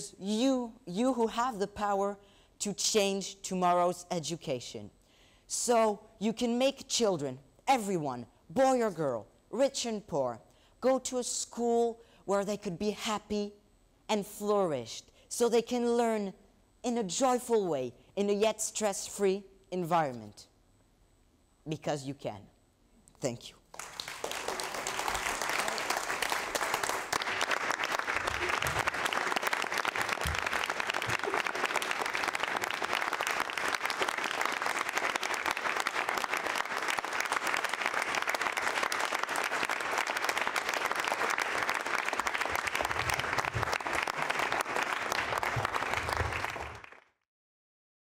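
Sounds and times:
audience applauding: 23.7s - 47.2s.

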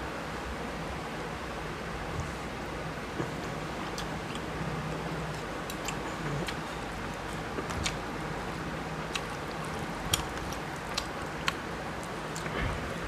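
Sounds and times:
low hum and hiss: 0.0s - 13.0s
chewing: 3.2s - 4.6s, 5.2s - 13.0s
fingers mixing food on plate: 3.2s - 13.0s.

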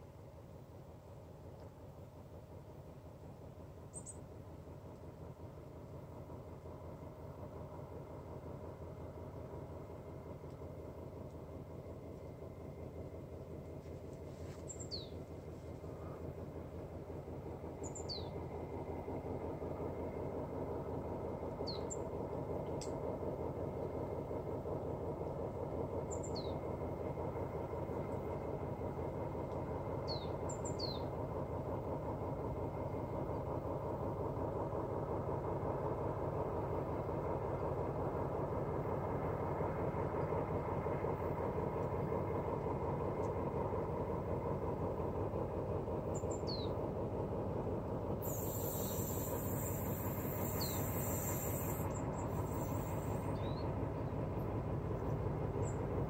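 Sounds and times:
diesel locomotive rumble: 0.0s - 56.0s
bird chirping: 3.9s - 4.2s, 14.7s - 15.2s, 17.8s - 18.4s, 48.3s - 54.1s
high hiss: 48.2s - 53.4s.

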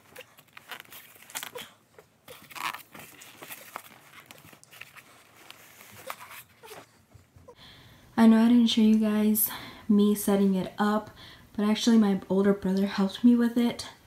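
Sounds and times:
foam and plastic wrap crinkling: 0.0s - 6.9s.

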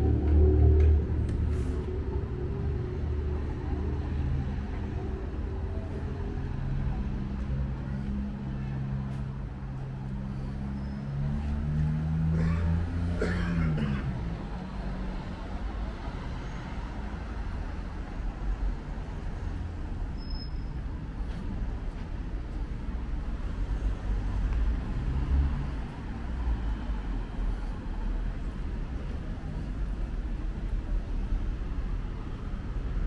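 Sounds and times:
vehicle passing by: 0.0s - 18.5s, 23.3s - 29.7s
low traffic rumble: 0.0s - 33.0s.

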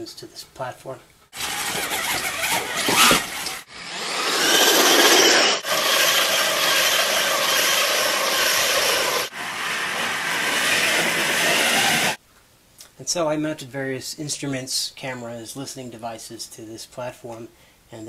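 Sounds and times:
tyres on terrain: 1.3s - 12.2s
toy truck motor whirring: 1.4s - 12.2s.

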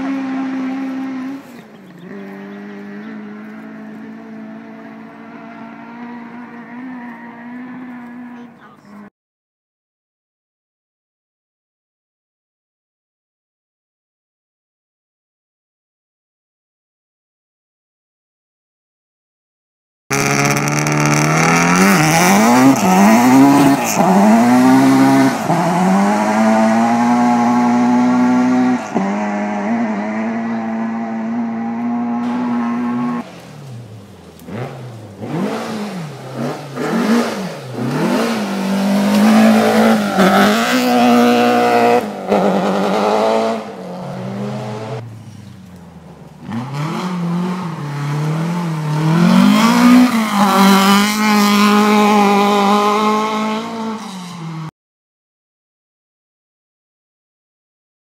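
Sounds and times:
rally car engines at full throttle: 0.0s - 9.1s, 20.1s - 54.7s
car sliding on gravel: 32.2s - 54.4s.

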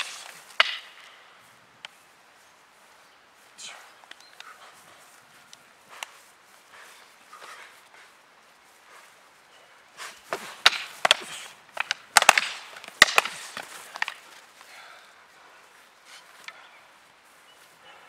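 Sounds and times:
fighting sticks clacking: 0.0s - 1.2s, 10.0s - 14.4s.

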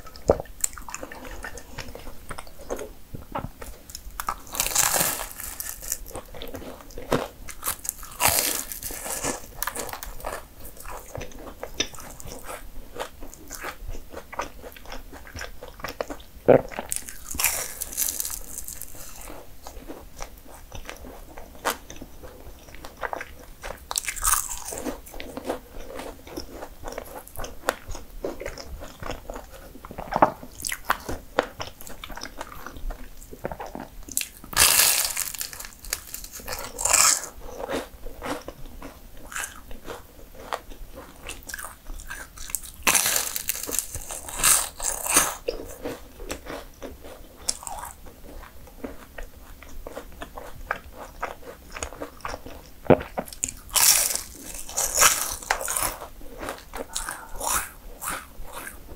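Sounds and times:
crunchy pastry chewing: 0.0s - 58.9s.

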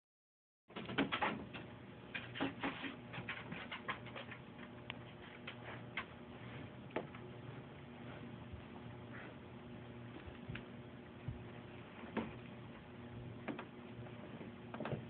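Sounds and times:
dog scratching blankets: 1.6s - 6.6s.

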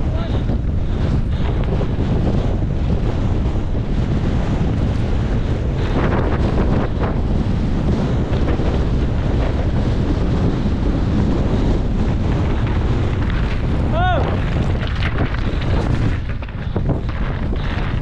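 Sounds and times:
wind buffeting microphone: 0.0s - 18.0s
short crackles: 12.2s - 18.0s.

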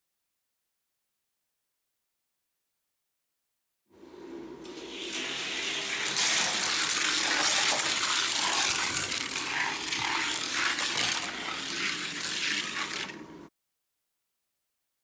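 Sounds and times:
toy cars rolling on plastic track: 5.1s - 13.2s.

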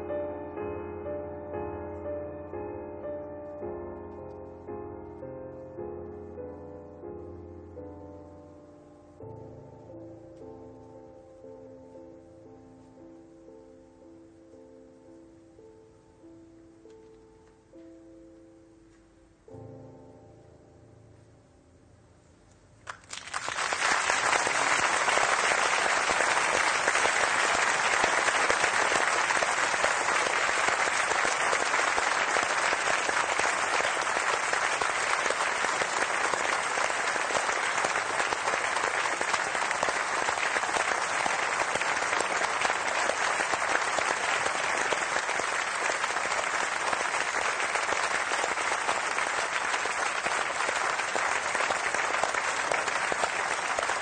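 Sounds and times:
large audience applauding: 22.8s - 54.0s.

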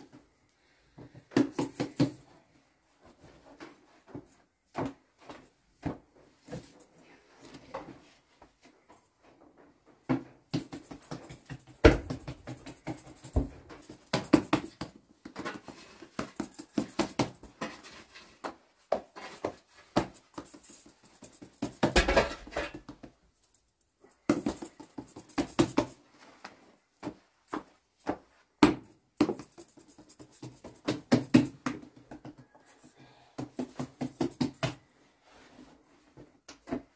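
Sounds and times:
hands slapping dough: 1.1s - 2.2s, 10.5s - 17.8s, 24.1s - 32.6s, 33.4s - 34.9s.

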